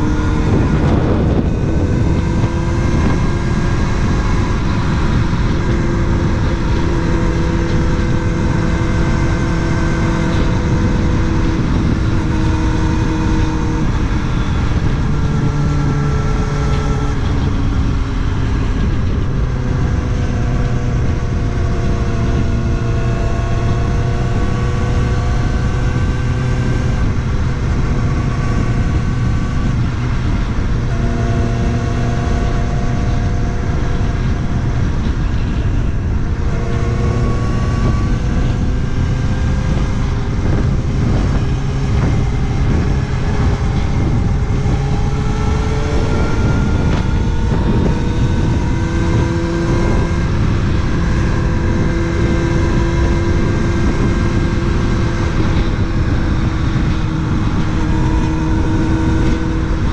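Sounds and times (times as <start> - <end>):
motorcycle engine running: 0.0 - 59.9
steady rushing noise: 0.0 - 59.9.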